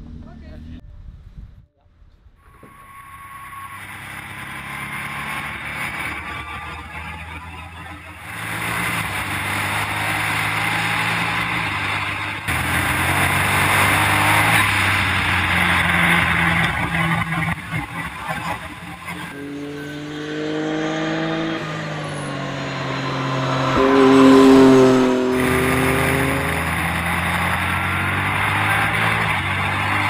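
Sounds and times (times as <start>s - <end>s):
road noise: 0.0s - 30.0s
wind noise: 0.8s - 3.1s
race car engine running hard: 3.4s - 30.0s.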